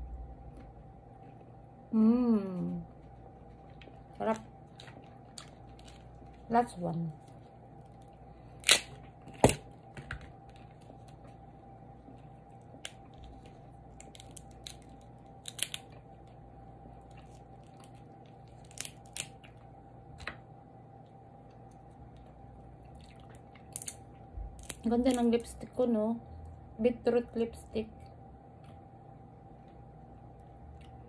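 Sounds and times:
crab shells cracking: 0:03.8 - 0:06.4, 0:07.8 - 0:11.2, 0:12.6 - 0:16.4, 0:17.0 - 0:20.4, 0:22.1 - 0:25.4.

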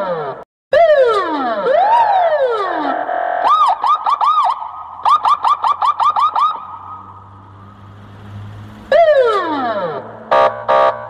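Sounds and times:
electronic siren chirps: 0:00.0 - 0:07.2.

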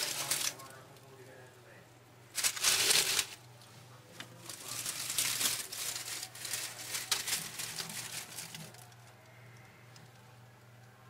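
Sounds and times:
dry leaves crackling and rustling: 0:00.0 - 0:00.7, 0:02.3 - 0:03.4, 0:04.3 - 0:09.1.

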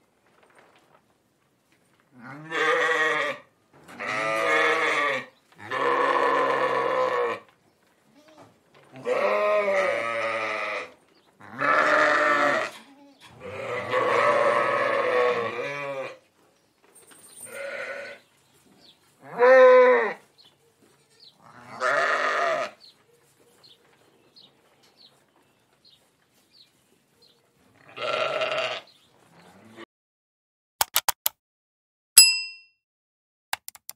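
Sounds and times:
sheep bleating: 0:02.2 - 0:03.4, 0:04.0 - 0:07.5, 0:09.0 - 0:16.2, 0:17.5 - 0:18.2, 0:19.2 - 0:20.2, 0:21.0 - 0:22.8, 0:27.8 - 0:29.8
sharp clicks: 0:30.8 - 0:31.4, 0:33.5 - 0:33.9.

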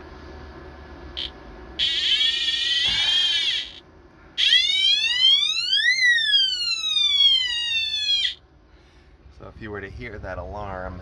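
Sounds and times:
electronic alarm chirp: 0:01.2 - 0:03.8, 0:04.4 - 0:08.4
steady electronic alarm tone: 0:01.2 - 0:03.8, 0:04.4 - 0:08.4
sweeping siren tone: 0:01.8 - 0:03.8, 0:04.4 - 0:08.4.

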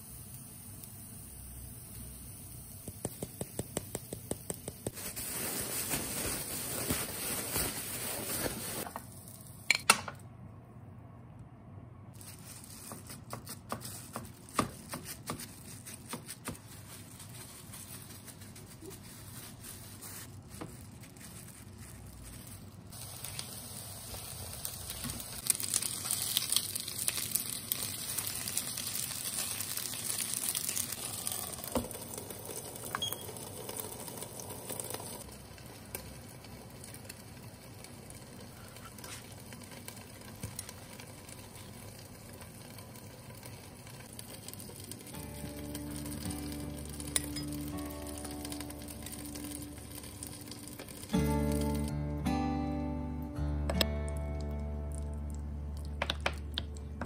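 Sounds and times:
patties sizzling in frying pan: 0:00.0 - 0:09.7, 0:22.0 - 0:51.9
plastic bag crinkling: 0:04.9 - 0:09.2, 0:12.2 - 0:23.6.

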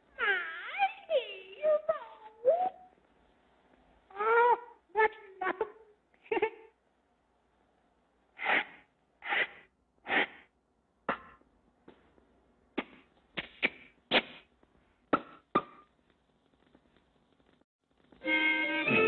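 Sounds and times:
cartoon smacks: 0:11.1 - 0:11.4, 0:12.8 - 0:14.5, 0:15.1 - 0:15.9.

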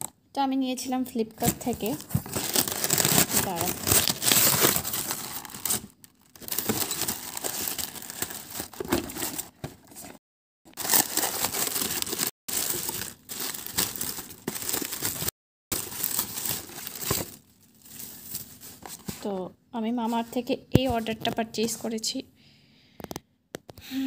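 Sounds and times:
paper wrap rustling and crinkling: 0:01.4 - 0:19.3.

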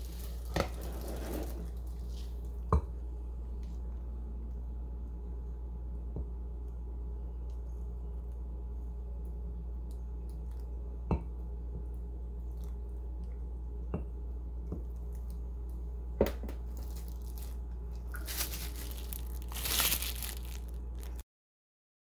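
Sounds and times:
steady low hum: 0:00.0 - 0:21.2
rustling: 0:16.7 - 0:21.2.

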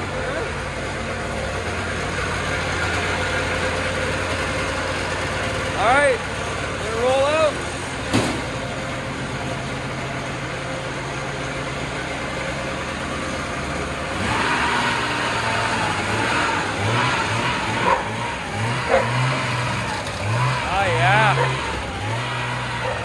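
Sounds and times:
snowmobile engine idling and revving: 0:00.0 - 0:23.0.

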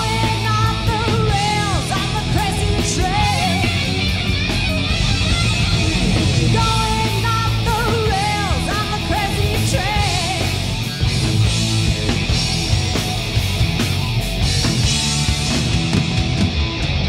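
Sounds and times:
woman singing: 0:00.0 - 0:03.9, 0:06.5 - 0:10.6
bass guitar: 0:00.0 - 0:17.0
distorted electric guitars: 0:00.0 - 0:17.0
drum kit: 0:00.0 - 0:17.0.

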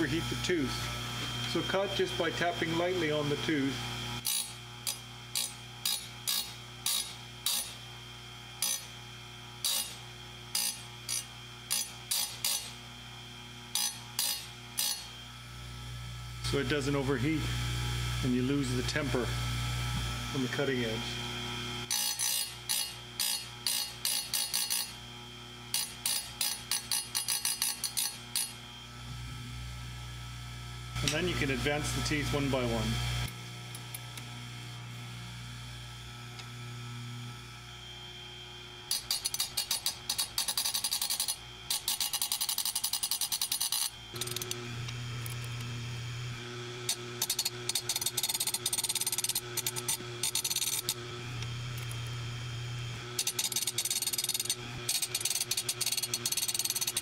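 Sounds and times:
motor humming: 0:00.0 - 0:57.0
grinding wheel tapping chain: 0:38.9 - 0:44.4, 0:47.2 - 0:50.9, 0:53.2 - 0:57.0.

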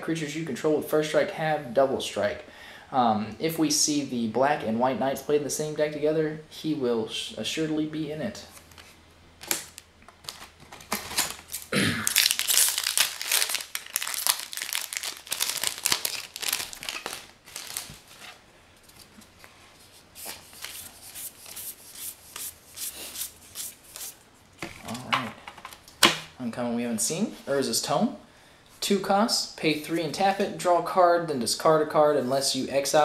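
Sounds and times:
foil wrapper crinkling and tearing: 0:09.4 - 0:18.2.

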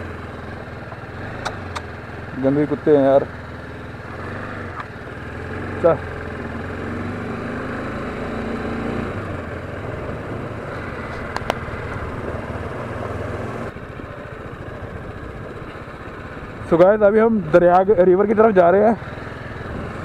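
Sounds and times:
motorcycle engine cruising: 0:00.0 - 0:20.0
sharp ticks: 0:00.9 - 0:02.0.

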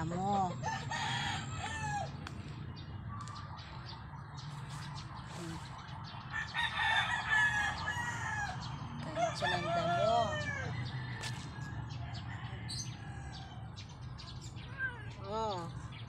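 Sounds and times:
rooster crowing: 0:00.6 - 0:02.2, 0:06.3 - 0:13.7.

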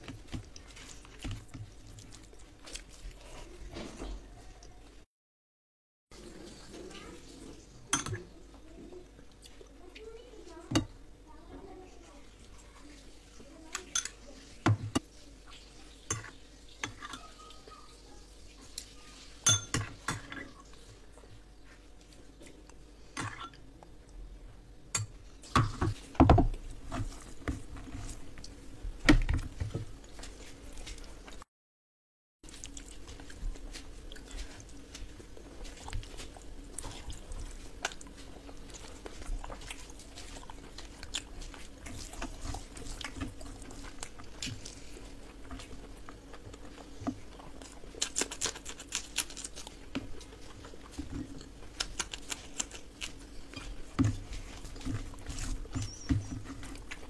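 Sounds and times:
fingers squishing rice: 0:32.5 - 0:57.0.

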